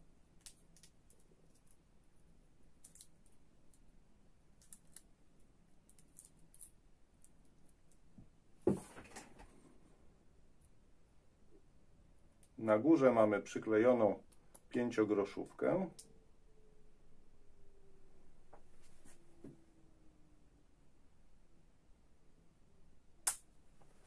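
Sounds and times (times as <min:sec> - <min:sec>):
short thump and rustle: 0:08.6 - 0:09.6.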